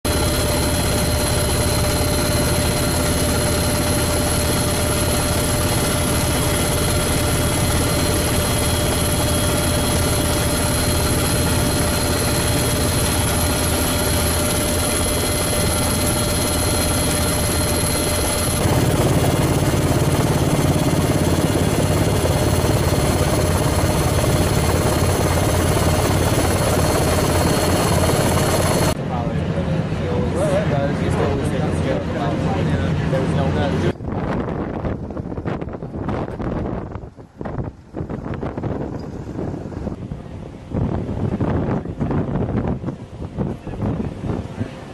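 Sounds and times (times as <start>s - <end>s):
helicopter rotor and turbine: 0.0s - 44.9s
high-pitched turbine whine: 0.1s - 34.0s.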